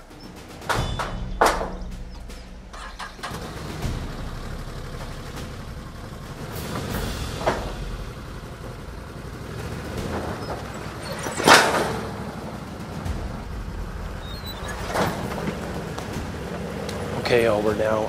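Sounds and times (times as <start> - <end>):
utility vehicle engine running: 0.0 - 18.0
wheels clanking off trailer: 0.0 - 18.0
metallic knock: 0.6 - 3.2.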